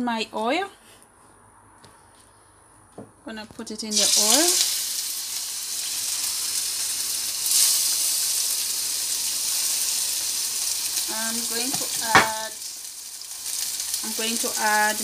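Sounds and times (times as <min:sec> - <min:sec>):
fish sizzling in hot oil: 0:03.9 - 0:15.0
sharp knock: 0:11.7 - 0:12.4.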